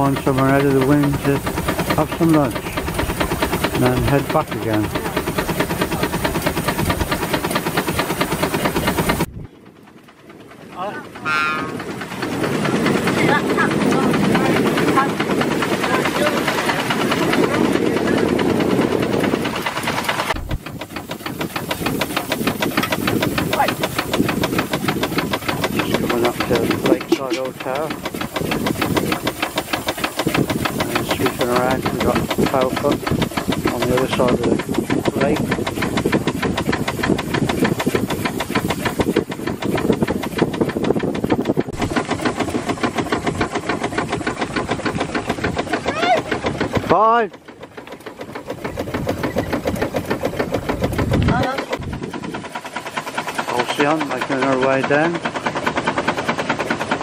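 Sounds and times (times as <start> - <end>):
steam hissing: 0.0 - 9.3, 11.1 - 57.0
steam engine beating: 0.0 - 57.0
water noise: 0.0 - 57.0
steam hiss: 19.2 - 40.4.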